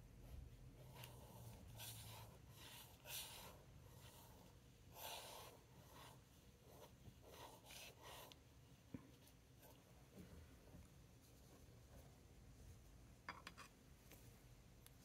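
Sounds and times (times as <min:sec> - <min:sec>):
paintbrush swishing on paper: 0:00.3 - 0:08.4.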